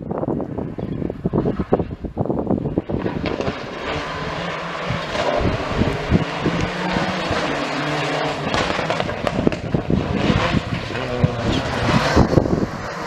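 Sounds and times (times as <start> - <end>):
road and wind noise: 0.0 - 13.0
rally car engine revving: 2.6 - 13.0.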